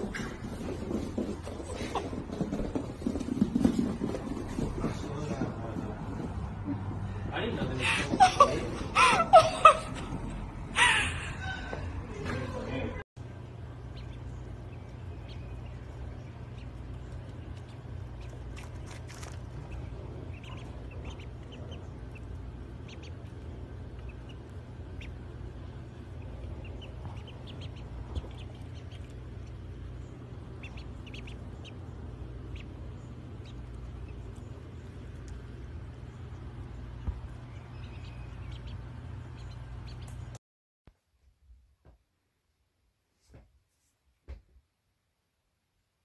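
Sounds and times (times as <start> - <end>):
steady low hum: 0.0 - 40.4
ducklings peeping: 11.3 - 40.4.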